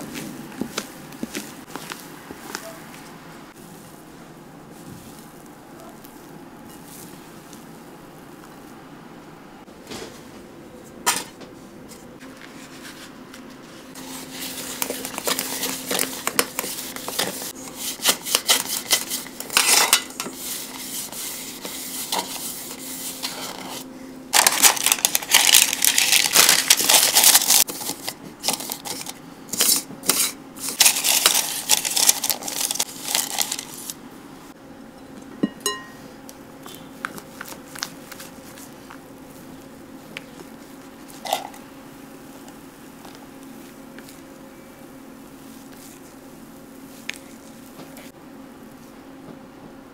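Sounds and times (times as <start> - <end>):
parchment paper crinkling: 12.3 - 34.0, 36.7 - 41.2.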